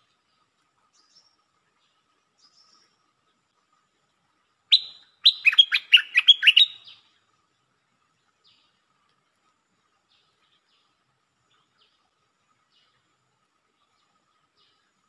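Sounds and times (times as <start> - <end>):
songbird calling: 4.7 - 7.2.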